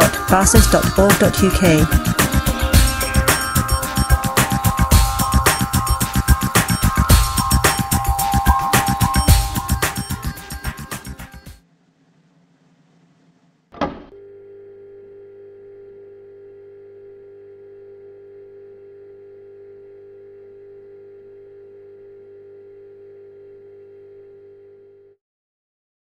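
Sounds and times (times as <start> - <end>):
steady electronic tone: 0.0 - 11.6.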